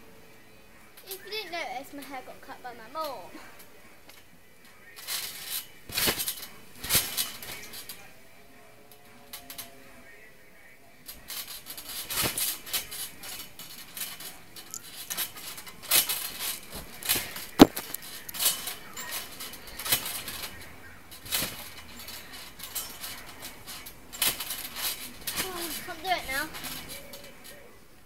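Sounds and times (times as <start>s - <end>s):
phone handling noise: 17.5s - 18.4s.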